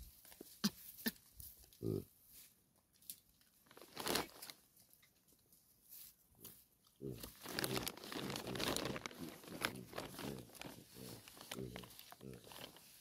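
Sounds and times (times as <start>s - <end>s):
baboon crunching food: 6.5s - 13.0s.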